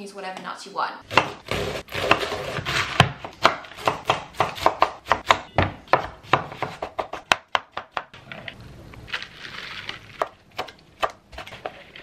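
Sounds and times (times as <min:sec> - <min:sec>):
knife chopping on wooden board: 0:01.1 - 0:08.2.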